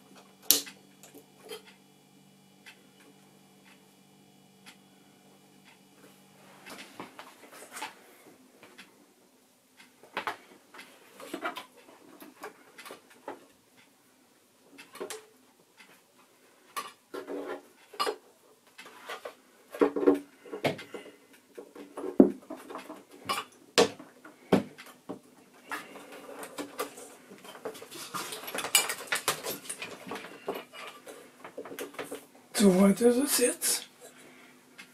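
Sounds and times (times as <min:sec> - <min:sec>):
scraping and rattling: 0:25.7 - 0:32.2.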